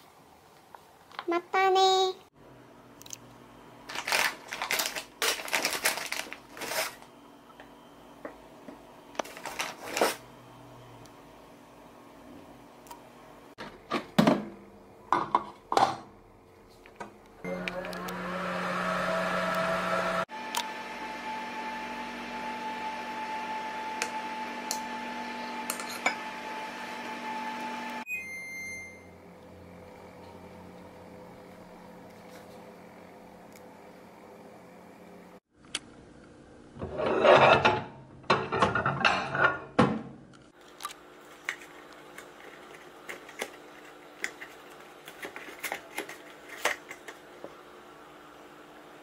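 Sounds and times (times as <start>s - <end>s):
electrical hum: 0.1s - 36.9s
plastic bag crinkling: 3.9s - 7.1s, 9.2s - 10.2s.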